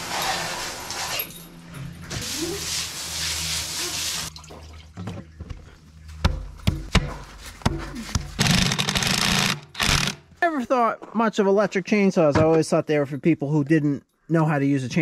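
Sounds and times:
hose spraying on concrete: 0:02.1 - 0:04.3.

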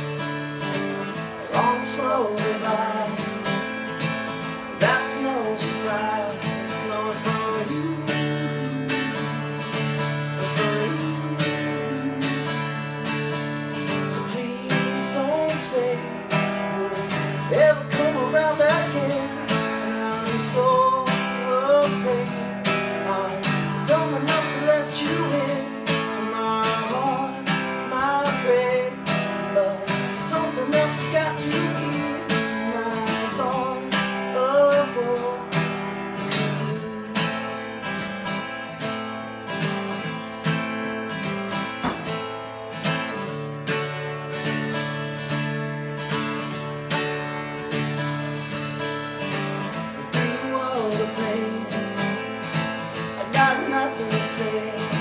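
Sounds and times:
man singing: 0:00.0 - 0:38.1, 0:49.2 - 0:55.0
acoustic guitar strumming: 0:00.0 - 0:55.0.

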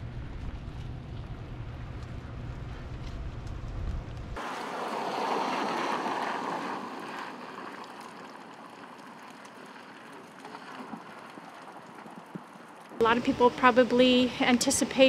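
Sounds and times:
car tyres hissing on wet road: 0:04.4 - 0:11.3.

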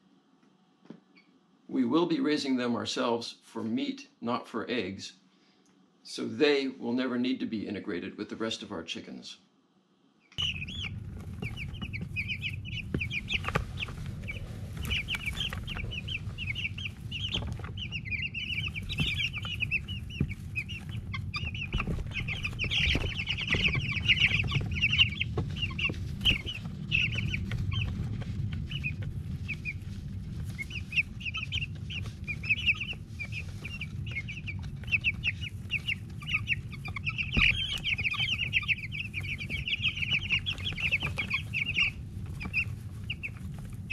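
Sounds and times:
chicks peeping: 0:10.3 - 0:43.9
low rumble: 0:10.4 - 0:43.9.

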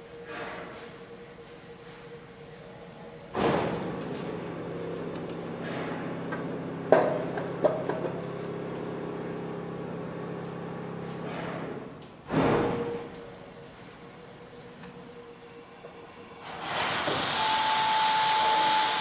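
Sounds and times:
mechanical hum: 0:00.0 - 0:19.0
steam hissing: 0:16.4 - 0:19.0.

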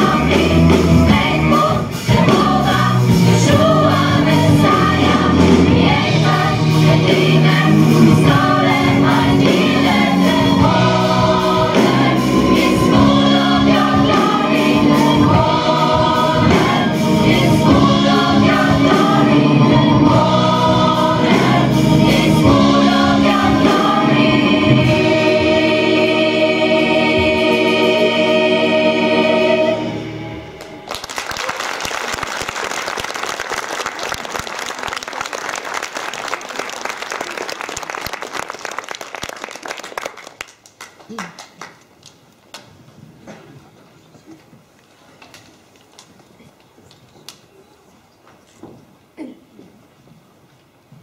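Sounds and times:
gospel choir singing: 0:00.0 - 0:30.8
audience applause: 0:30.6 - 0:42.2.

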